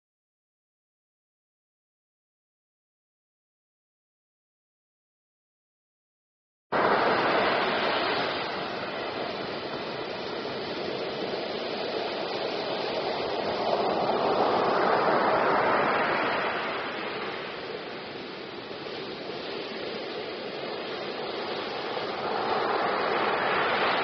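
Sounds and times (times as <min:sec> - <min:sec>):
ocean waves breaking: 0:06.8 - 0:24.0.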